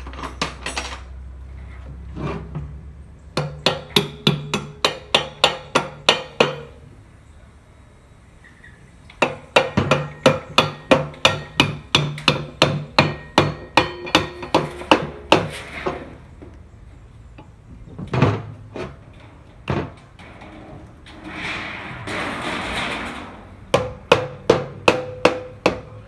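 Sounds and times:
hammer striking metal: 3.4 - 6.8, 9.2 - 16.0, 23.7 - 26.0.

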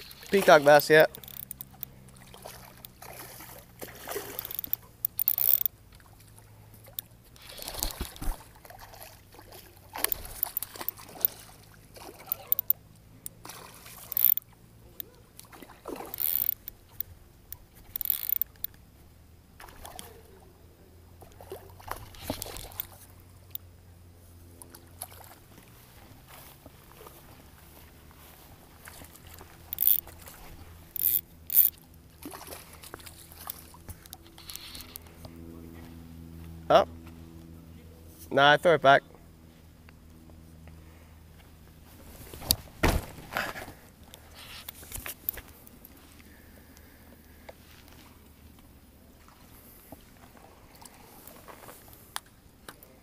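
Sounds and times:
fish splashing at surface: 1.2 - 12.7.

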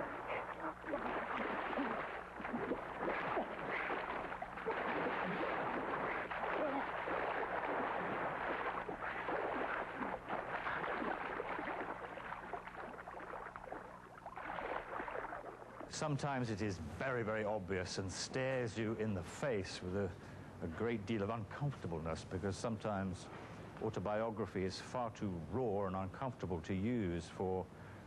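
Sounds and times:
water splashing and gurgling: 0.0 - 16.0
low steady hum: 0.0 - 28.0.

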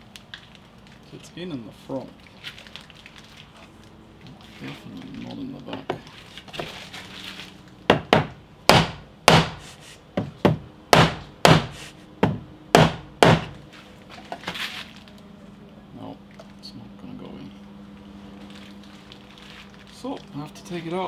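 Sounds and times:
mallet striking wooden block: 7.9 - 9.6, 10.2 - 13.5.

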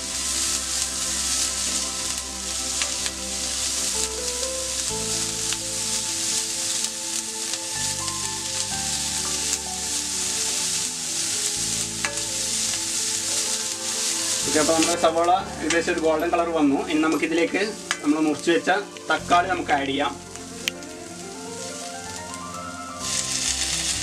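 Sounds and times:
background music: 0.0 - 24.0
onions sizzling in oil: 0.0 - 24.0.

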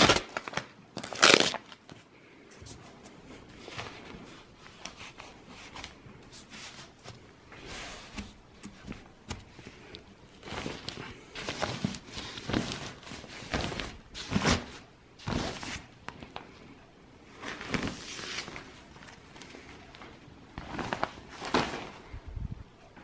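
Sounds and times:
fabric sleeve rustling: 2.7 - 22.3.

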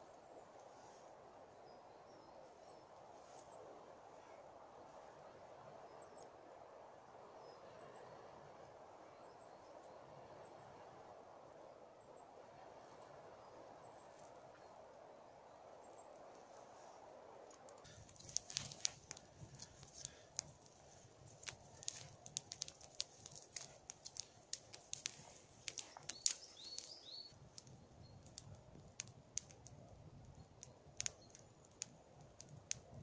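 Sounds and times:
twig fire crackling and popping: 12.5 - 14.8, 15.4 - 33.0.

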